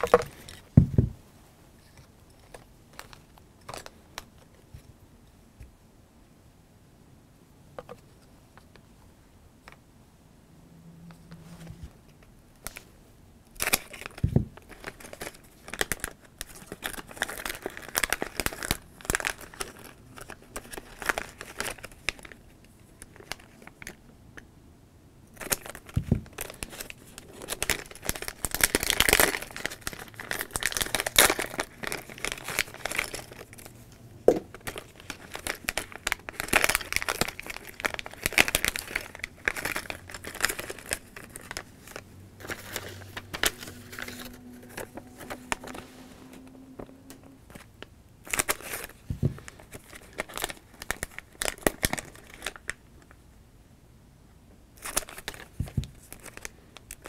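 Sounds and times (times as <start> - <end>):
plastic packets crinkling: 0.0 - 0.7, 13.5 - 24.0, 25.3 - 53.1, 54.8 - 57.0.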